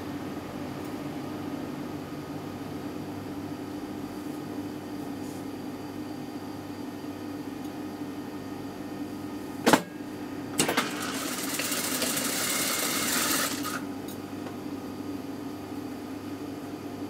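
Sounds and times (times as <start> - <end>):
sewing machine chatter: 10.6 - 13.8
sewing machine hum: 10.6 - 13.9.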